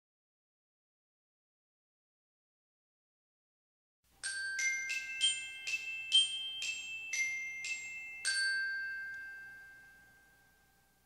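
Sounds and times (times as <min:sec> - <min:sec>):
timer alarm bell-like tune: 0:04.2 - 0:11.0.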